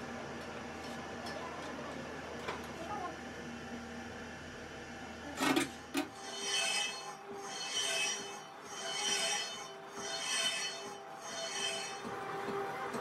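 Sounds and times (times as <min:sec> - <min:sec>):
metal scraping: 0:06.1 - 0:12.1.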